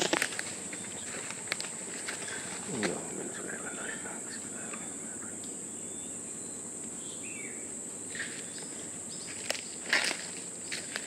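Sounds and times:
sharp crackles: 0.0 - 3.1
insects droning: 0.0 - 11.0.

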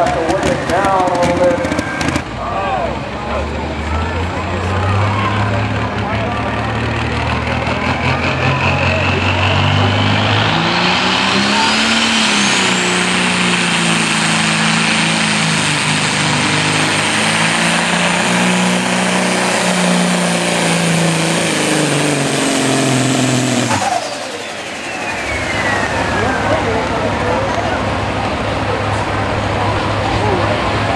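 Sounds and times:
truck diesel engine at full power: 0.0 - 30.9
high whistle: 23.8 - 26.5.

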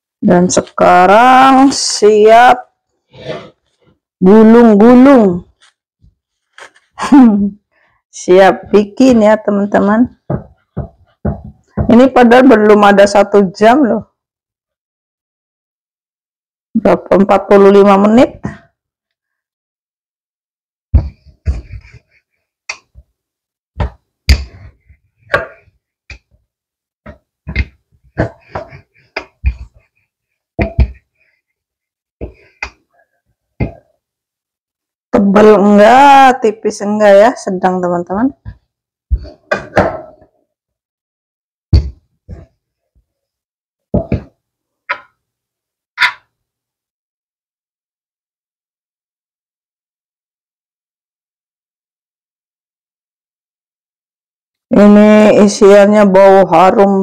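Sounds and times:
rolling pin knocking on countertop: 10.3 - 12.0.

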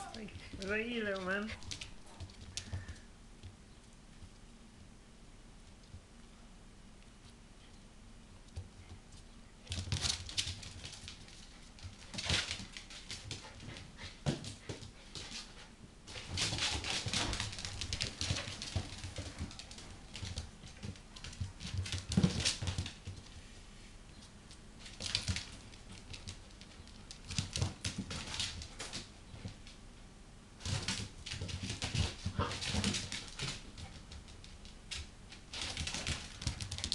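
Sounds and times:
dogs scuffling: 0.0 - 4.3, 8.5 - 23.5, 24.2 - 29.8, 30.6 - 36.9
dog play noises: 0.0 - 4.9, 7.0 - 23.5, 24.2 - 29.8, 30.6 - 36.9.

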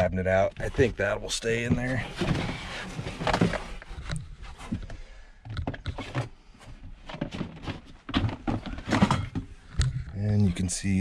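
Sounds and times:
plastic drawer knocking and scraping: 0.4 - 4.9, 5.6 - 9.5.

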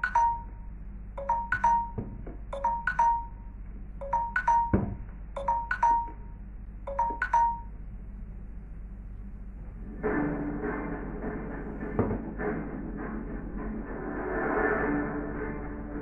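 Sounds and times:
electronic ringtone chimes: 0.0 - 0.6, 1.2 - 6.3, 6.9 - 7.7.

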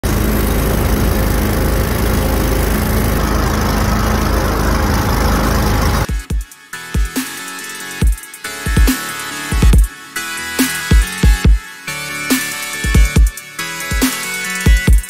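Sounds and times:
boat motor engine drone: 0.0 - 6.1.

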